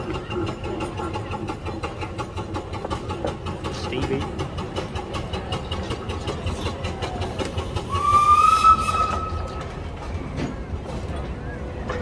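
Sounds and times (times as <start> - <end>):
steam engine whistle blast: 7.9 - 9.6.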